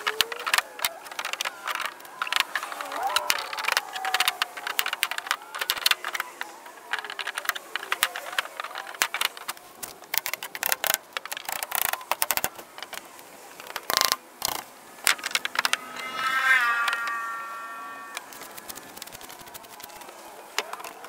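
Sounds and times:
clatter of clicks and knocks: 0.0s - 13.0s
short high squeal: 15.7s - 18.9s.

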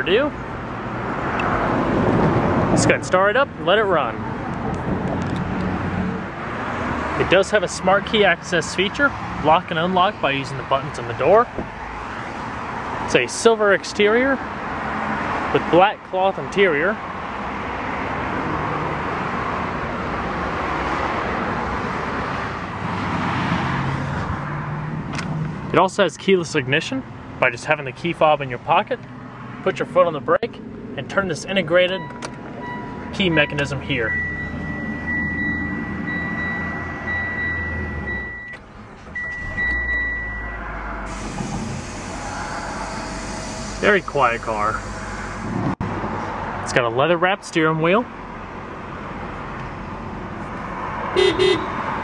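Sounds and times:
road traffic roar: 0.0s - 52.0s
car engine cranking and idling: 29.8s - 46.1s
steady high tone: 39.3s - 45.8s.

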